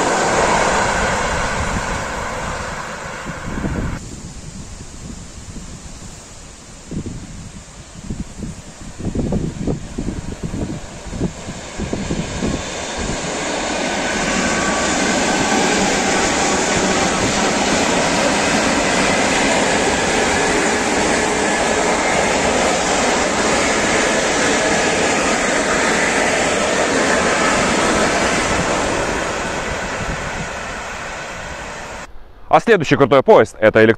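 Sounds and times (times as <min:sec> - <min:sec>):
train passing at speed: 0:00.0 - 0:33.0.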